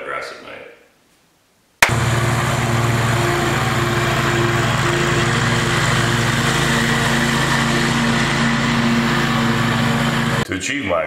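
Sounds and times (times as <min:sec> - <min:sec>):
riding mower engine running: 0:01.8 - 0:10.4.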